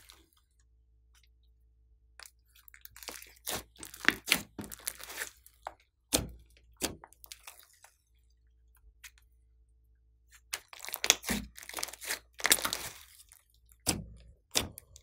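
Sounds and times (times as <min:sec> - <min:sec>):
hands kneading slime: 0:02.2 - 0:09.4, 0:10.3 - 0:15.0
sticky clicks and crackles: 0:10.6 - 0:13.0.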